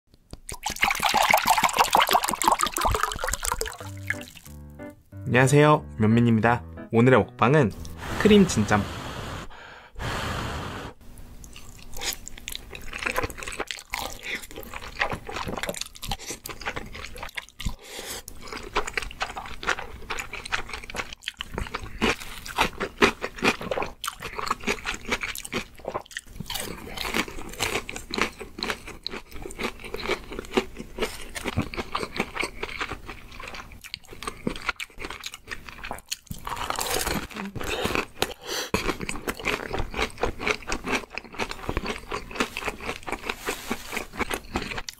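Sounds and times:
slurping noodles: 7.8s - 11.0s.

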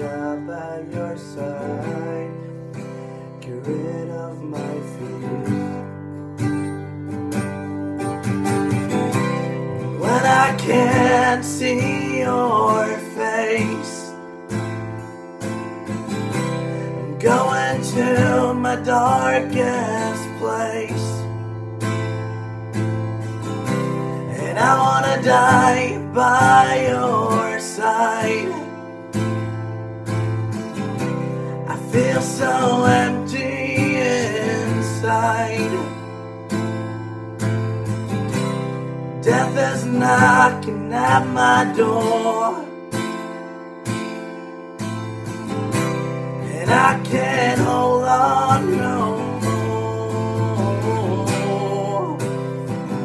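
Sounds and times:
man singing: 0.0s - 5.9s, 9.8s - 14.3s, 16.8s - 21.5s, 24.1s - 28.9s, 31.5s - 36.1s, 39.2s - 42.8s, 46.4s - 53.0s
acoustic guitar strumming: 0.0s - 53.0s.

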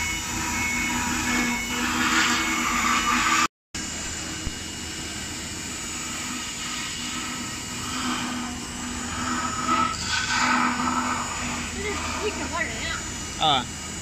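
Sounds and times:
router spindle whirring hiss: 0.0s - 14.0s.

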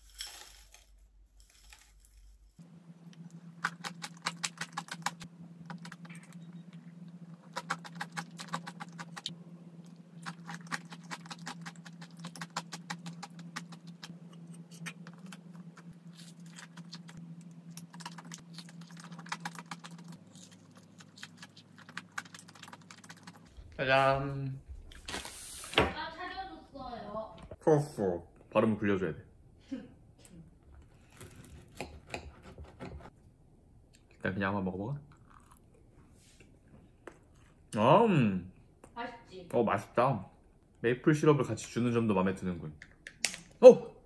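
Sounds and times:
crunchy chewing: 7.3s - 23.6s.

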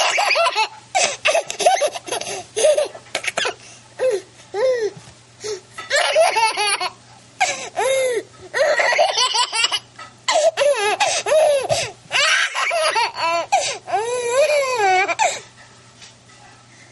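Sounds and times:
baby laughing: 0.0s - 4.8s, 5.9s - 15.4s.

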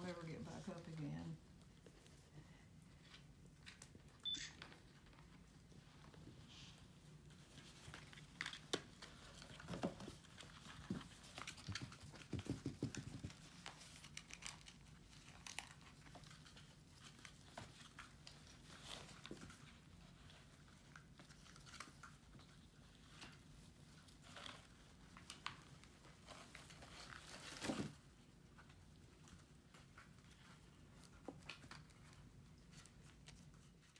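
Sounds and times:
tinsel crinkling and rustling: 4.8s - 33.9s
kittens pawing taps: 9.6s - 13.9s.

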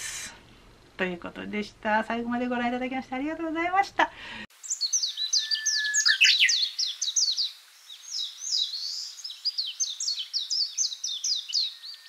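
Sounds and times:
songbird chirping: 4.5s - 12.0s.

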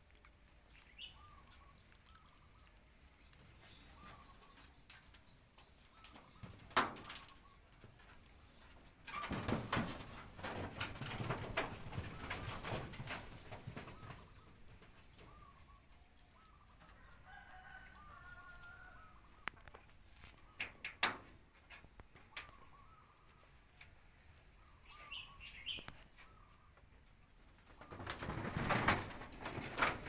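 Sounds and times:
rustling and clicking knocks: 3.5s - 15.4s, 19.4s - 22.8s, 25.7s - 30.0s
rooster crowing faintly: 16.8s - 19.5s.

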